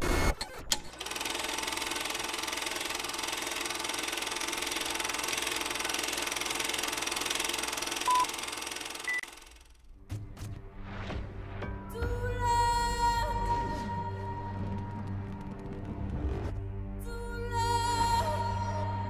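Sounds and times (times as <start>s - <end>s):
film projector whirring and clattering: 0.0s - 9.8s.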